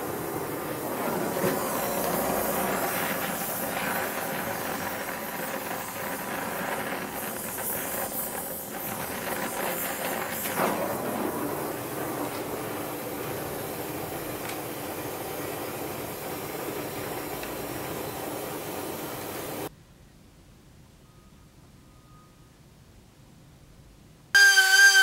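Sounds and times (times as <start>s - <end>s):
torch hissing: 0.0s - 19.7s.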